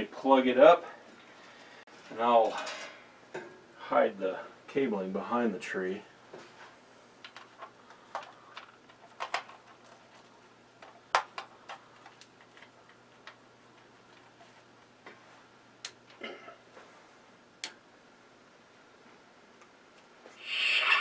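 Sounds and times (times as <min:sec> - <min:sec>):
plastic clicks and rustles: 0:07.2 - 0:14.6.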